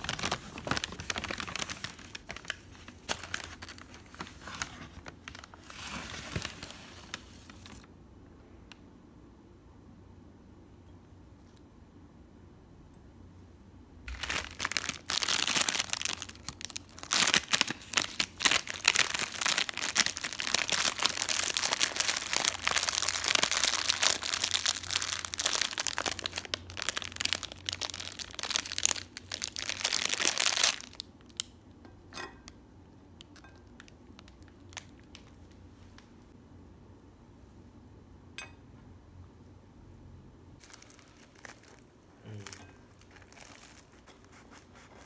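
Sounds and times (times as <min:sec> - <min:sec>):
plastic wrapper crinkling: 0:00.0 - 0:07.9, 0:14.1 - 0:31.6, 0:33.2 - 0:36.1, 0:40.6 - 0:45.0.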